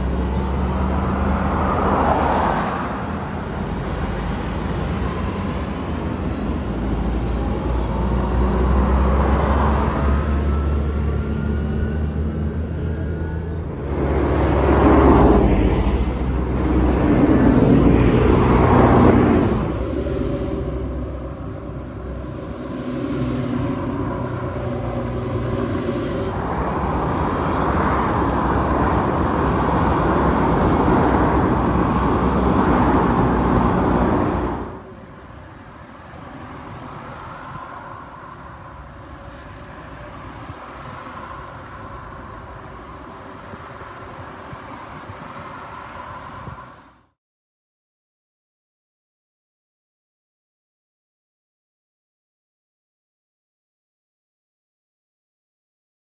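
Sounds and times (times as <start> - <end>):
tractor engines running: 0.0 - 46.6.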